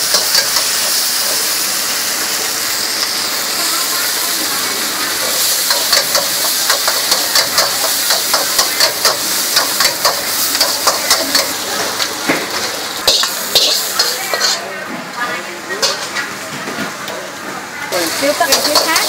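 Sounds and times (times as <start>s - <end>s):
noodles sizzling in a wok: 0.0s - 19.0s
metal spatula scraping a wok: 13.0s - 14.6s, 15.7s - 16.2s, 18.0s - 19.0s.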